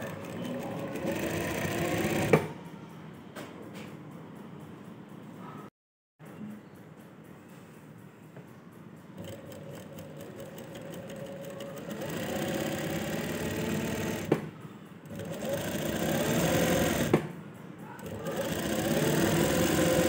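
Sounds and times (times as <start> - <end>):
sewing machine stitching: 0.0 - 2.5, 9.2 - 14.5, 15.1 - 17.3, 18.0 - 20.0.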